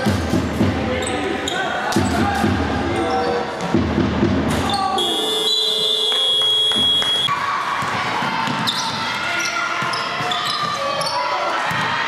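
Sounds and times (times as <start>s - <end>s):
players' voices: 0.6s - 3.8s, 7.3s - 12.0s
referee whistle blast: 4.7s - 7.3s.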